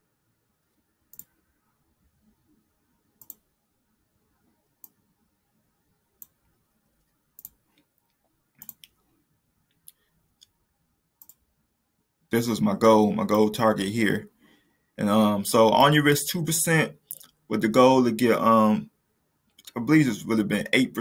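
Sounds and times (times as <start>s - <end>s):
computer mouse clicks: 1.1s - 1.4s, 3.2s - 3.5s, 4.8s - 5.0s, 6.2s - 9.0s, 11.2s - 11.4s.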